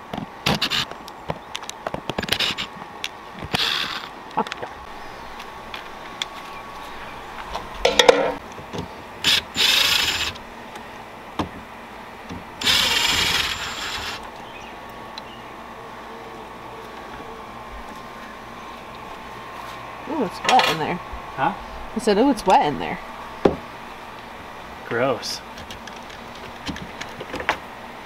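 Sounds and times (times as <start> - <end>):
cordless drill turning screws: 0.5 - 0.9, 2.2 - 2.7, 3.4 - 4.1, 9.2 - 10.4, 12.6 - 14.2.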